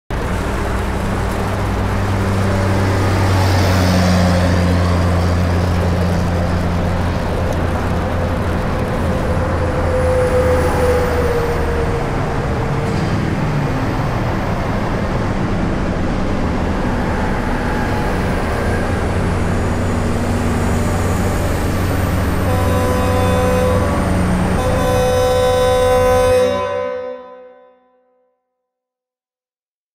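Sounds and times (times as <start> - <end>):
highway road and engine noise: 0.1 - 27.1
vehicle horn: 22.1 - 28.3.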